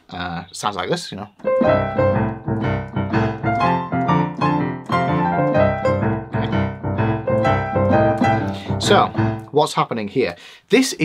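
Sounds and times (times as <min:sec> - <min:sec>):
boogie-woogie piano: 0:01.4 - 0:09.6.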